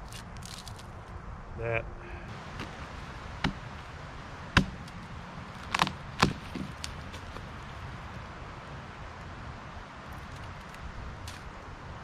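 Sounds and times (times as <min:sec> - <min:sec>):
blade chopping into log: 0:04.6 - 0:05.0, 0:05.6 - 0:07.4.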